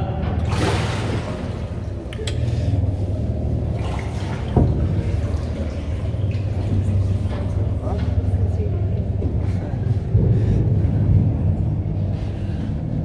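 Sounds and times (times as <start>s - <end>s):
boat motor humming: 0.0s - 13.0s
water sloshing and echoing: 0.0s - 13.0s.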